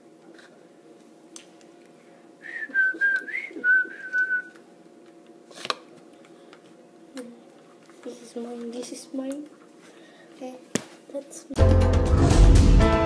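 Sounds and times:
person whistling a wavering tune: 2.4s - 4.6s.

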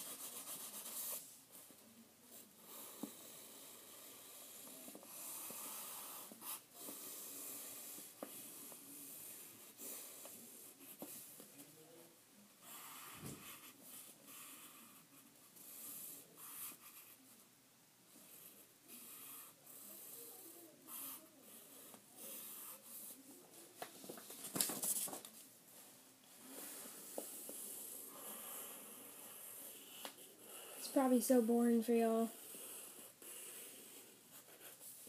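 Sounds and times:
pencil scratching on paper: 0.0s - 1.7s, 2.3s - 11.3s, 12.6s - 17.2s, 32.0s - 35.0s.

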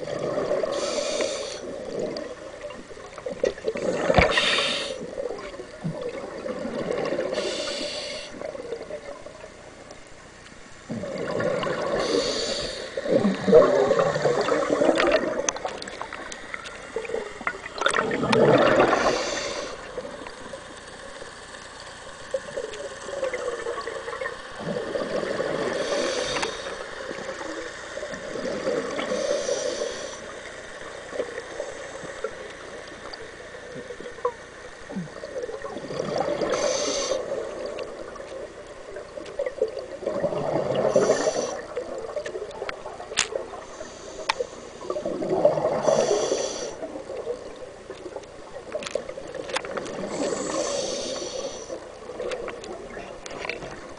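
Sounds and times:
exhaled bubbles gurgling: 0.0s - 9.6s, 10.9s - 21.2s, 22.3s - 53.9s
regulator inhale hiss: 0.5s - 2.3s, 3.8s - 5.2s, 7.2s - 8.6s, 11.9s - 13.4s, 18.7s - 20.3s, 25.4s - 32.8s, 36.4s - 37.4s, 40.8s - 41.8s, 43.5s - 45.0s, 45.8s - 47.0s, 50.0s - 52.1s.

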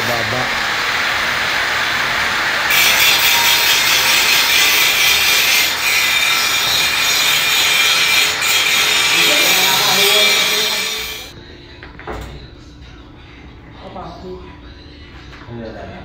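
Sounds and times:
angle grinder grinding metal: 2.7s - 11.4s.

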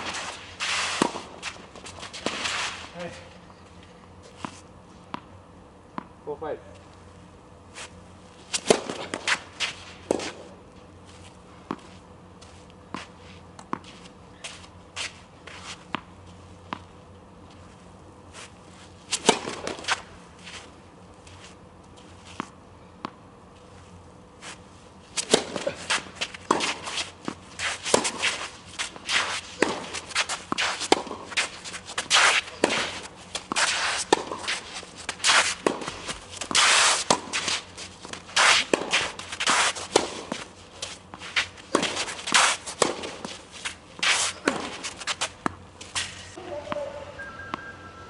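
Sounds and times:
racquets striking tennis ball: 0.0s - 3.0s, 8.4s - 10.6s, 19.1s - 20.1s, 25.1s - 47.8s
footsteps and shoe scuffs on court: 0.0s - 5.2s, 7.7s - 22.6s, 23.5s - 47.8s
ball bouncing: 46.4s - 47.8s.

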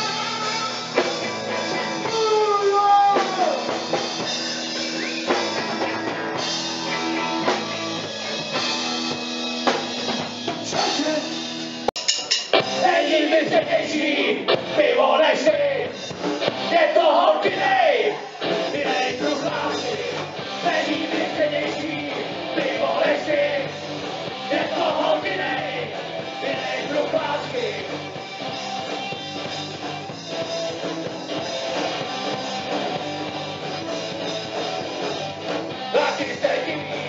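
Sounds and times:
singer's vocals: 0.0s - 3.8s, 12.7s - 16.0s, 16.6s - 28.1s, 35.8s - 37.0s
live rock band playing: 0.0s - 37.0s.

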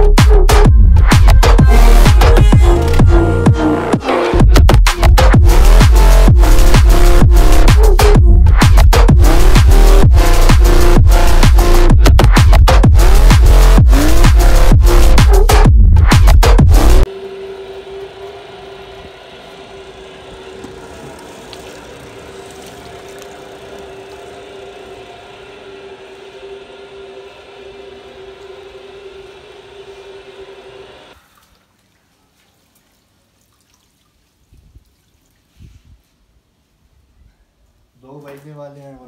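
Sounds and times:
washing machine motor hum: 17.0s - 31.2s
water churning in tub: 20.6s - 25.6s.

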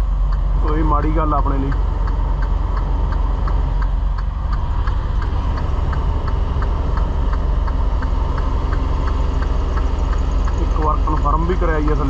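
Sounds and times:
diesel truck engine running: 0.0s - 12.0s
light regular ticking: 0.0s - 12.0s.

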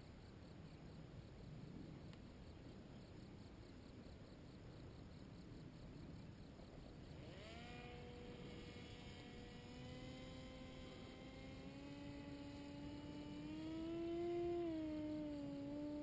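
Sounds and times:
paramotor engine droning: 6.7s - 16.0s.

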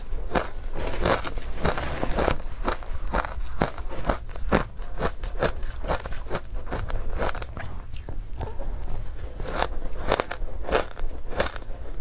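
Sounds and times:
soft crunches of chewing ice: 0.0s - 11.7s.

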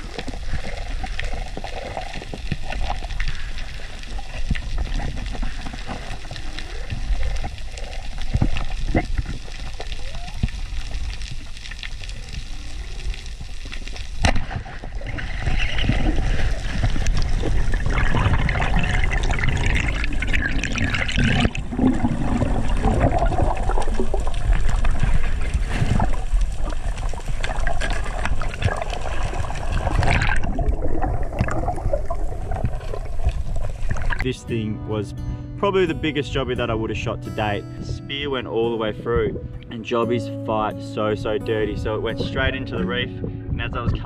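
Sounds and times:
underwater clicks: 0.0s - 34.2s
underwater rush of water: 0.0s - 34.3s.

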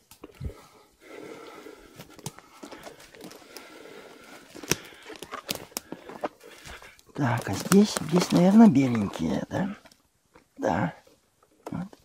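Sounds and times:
leaves rustling: 0.0s - 10.0s
footsteps through undergrowth: 1.8s - 10.0s
dry twigs snapping: 1.9s - 10.5s.

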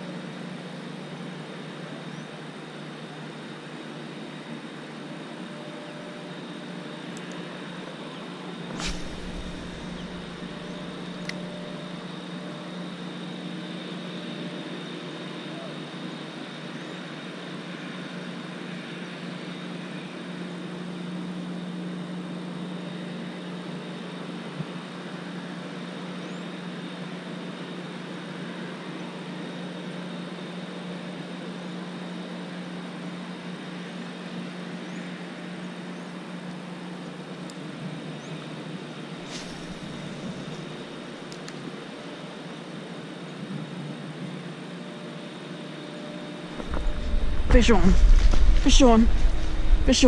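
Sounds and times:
short hiss: 8.7s - 10.9s, 39.2s - 40.4s
low hum: 8.7s - 12.1s, 39.2s - 41.3s, 46.5s - 50.0s
mechanical drone: 8.7s - 12.1s, 46.5s - 50.0s.

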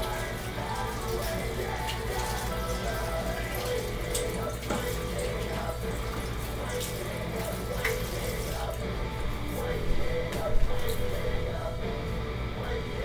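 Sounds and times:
tap water running into sink: 0.0s - 8.8s
background music: 0.0s - 13.0s
things knocking in sink: 4.6s - 5.0s.

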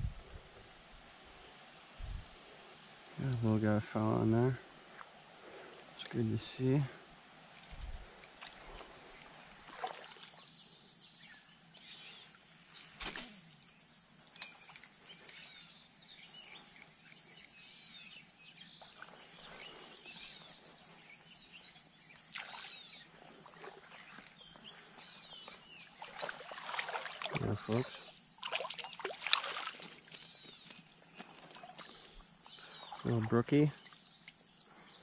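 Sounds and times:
steady high-pitched hiss: 0.0s - 28.4s
birds singing: 8.6s - 13.0s, 13.6s - 35.0s.

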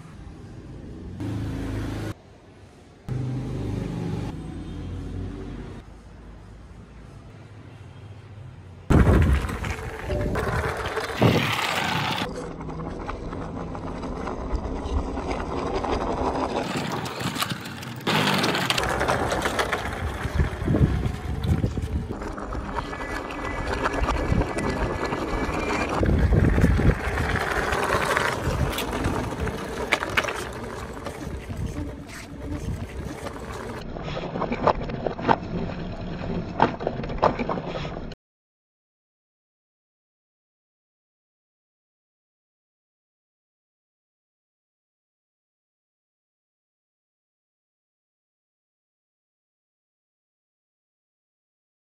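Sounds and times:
wind rumbling on microphone: 8.9s - 12.2s, 19.0s - 33.8s
wheels rolling on concrete: 8.9s - 38.2s.

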